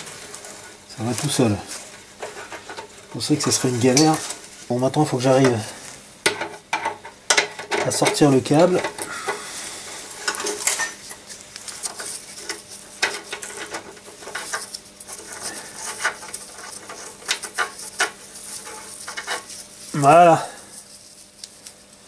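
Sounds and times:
small metallic clicks and scrapes: 0:10.3 - 0:19.6.

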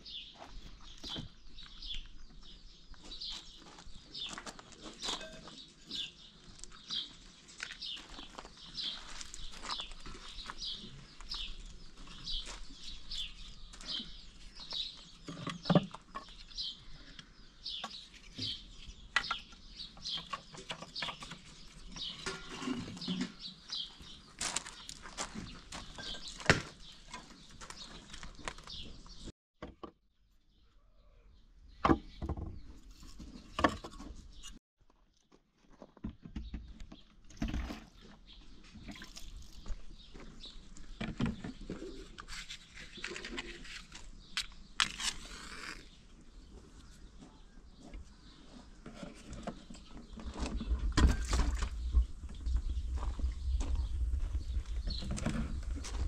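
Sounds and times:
bird chirping: 0:00.0 - 0:29.3.

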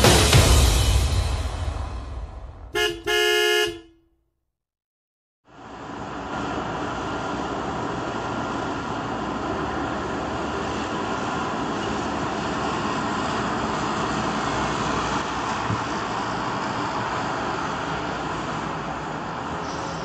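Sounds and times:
recorded engine rumble: 0:05.5 - 0:20.0.

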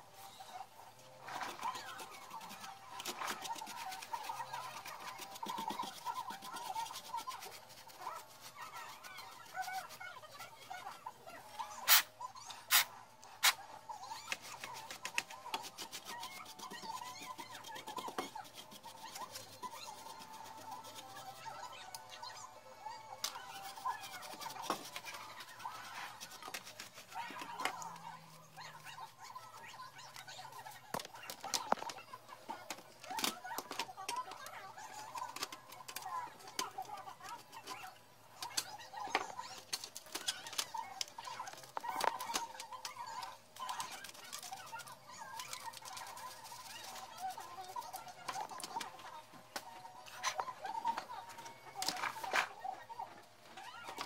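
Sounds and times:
continuous wavering background sound: 0:00.0 - 0:54.0
brush scrubbing circuit board: 0:01.2 - 0:12.1, 0:12.7 - 0:21.8, 0:23.1 - 0:31.8.

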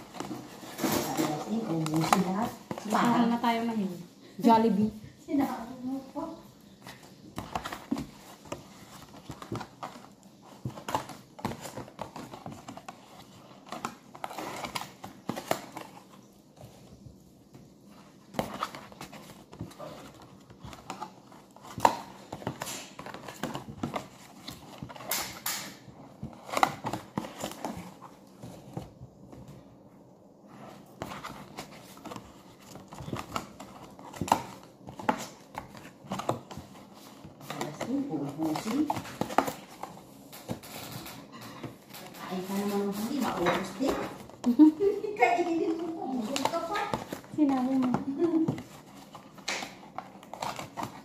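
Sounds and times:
cardboard rustling and creasing: 0:00.0 - 0:51.0
cardboard snaps and taps: 0:49.4 - 0:51.0.

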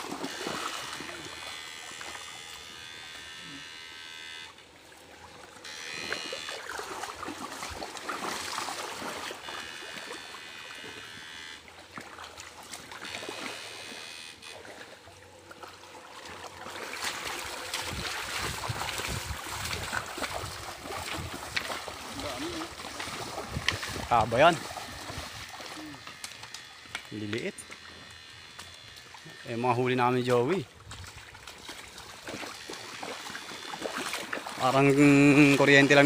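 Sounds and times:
water sloshing and splashing: 0:00.0 - 0:03.2, 0:04.5 - 0:36.0
high electrical whine: 0:00.0 - 0:04.8, 0:05.5 - 0:06.8, 0:09.1 - 0:11.8, 0:17.2 - 0:30.8.

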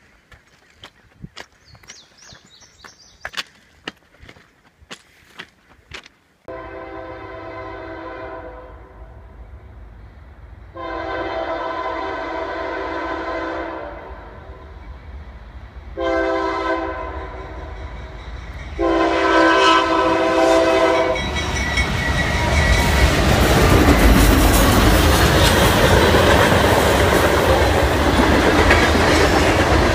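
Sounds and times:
locomotive air horn: 0:06.5 - 0:09.3, 0:10.7 - 0:14.6, 0:16.0 - 0:17.8, 0:18.8 - 0:21.3
locomotive passing: 0:06.8 - 0:29.9.

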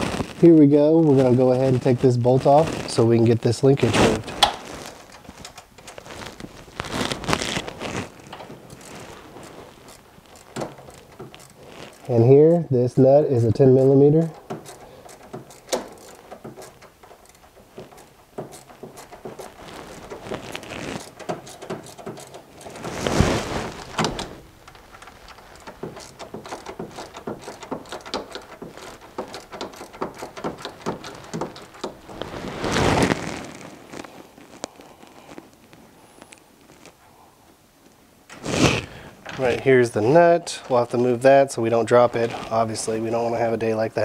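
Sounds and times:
rustling handling noises: 0:00.0 - 0:44.0
ratchet wrench clicking: 0:08.7 - 0:12.6, 0:13.4 - 0:20.1, 0:21.0 - 0:22.8, 0:24.7 - 0:32.0.

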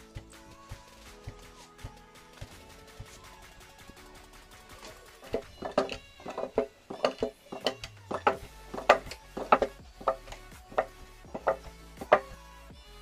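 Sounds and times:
faint background music: 0:00.0 - 0:13.0
wooden pestle pounding rice: 0:05.2 - 0:12.3.

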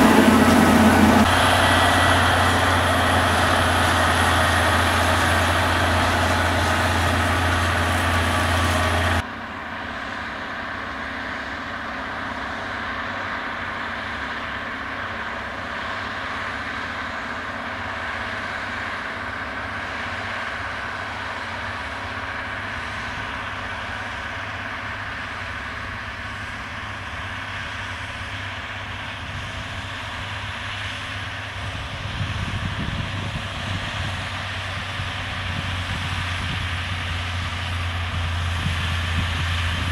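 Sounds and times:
low rumble: 0:00.0 - 0:09.2
tractor diesel engine running: 0:00.0 - 0:39.9.

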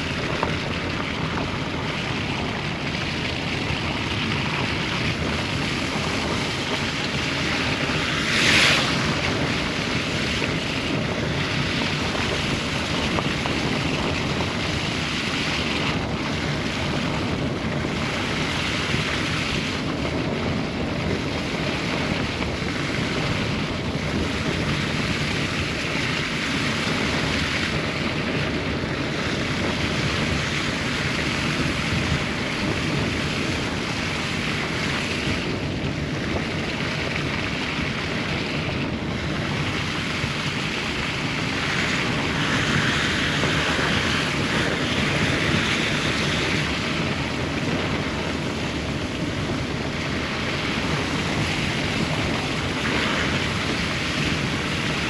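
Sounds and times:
low road rumble: 0:00.0 - 0:55.0
rushing wind: 0:00.0 - 0:55.0
tyre hiss on wet road: 0:04.3 - 0:13.6, 0:39.2 - 0:48.8.

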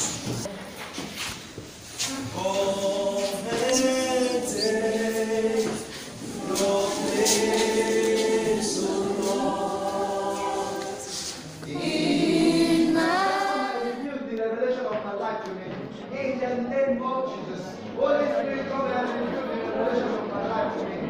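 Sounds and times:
group singing unaccompanied: 0:02.0 - 0:14.1.

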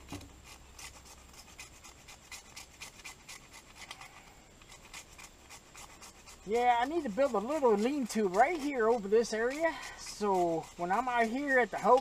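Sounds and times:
knife scraping wood: 0:00.0 - 0:12.0.

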